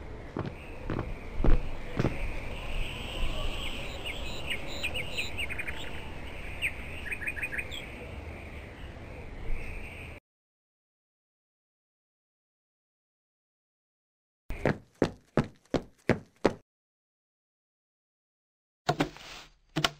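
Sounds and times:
birds chirping: 0:00.0 - 0:10.2
outdoor ambience: 0:00.0 - 0:10.2, 0:14.5 - 0:16.6
heavy footsteps: 0:00.4 - 0:02.3.

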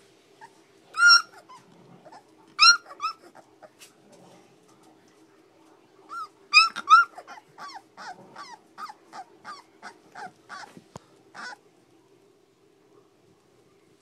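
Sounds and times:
puppy whimpering: 0:00.4 - 0:03.8, 0:06.1 - 0:11.6.

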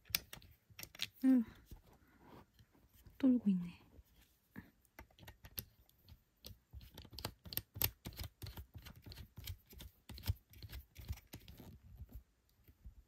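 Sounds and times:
small plastic clicks and taps: 0:00.0 - 0:01.2, 0:04.9 - 0:11.6.

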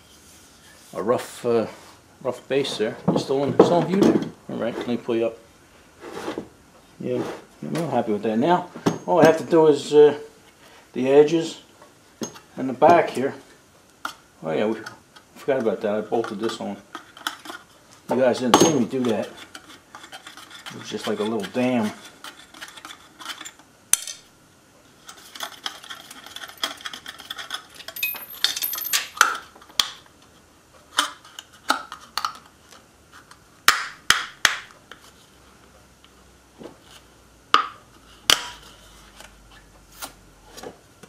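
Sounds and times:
metal plate clicks and clinks: 0:27.9 - 0:29.3.

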